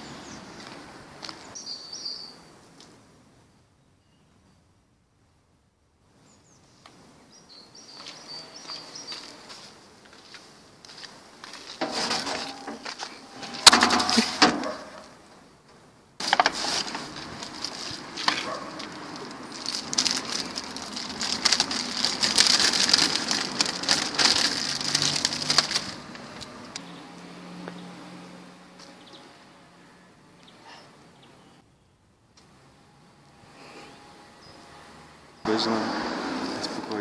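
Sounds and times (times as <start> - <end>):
plastic and paper crinkling: 16.2 - 26.8.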